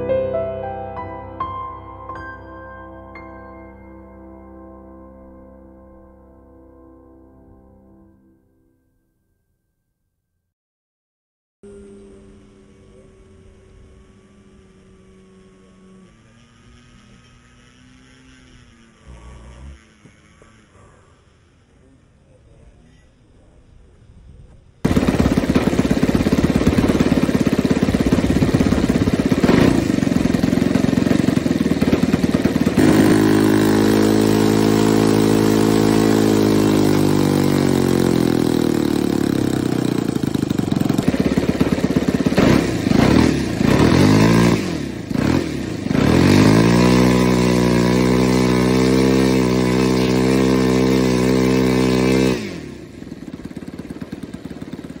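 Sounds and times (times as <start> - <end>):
model airplane engine running: 11.6 - 24.0, 24.8 - 55.0.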